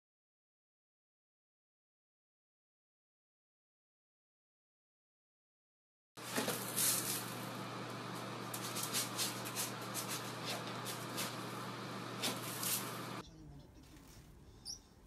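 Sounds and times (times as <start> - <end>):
cat digging in litter: 6.2 - 13.2.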